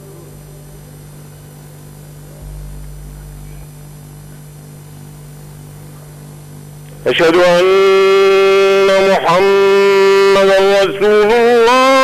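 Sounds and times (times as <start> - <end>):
electrical mains hum: 0.0 - 12.0
deep low rumble: 2.3 - 5.6.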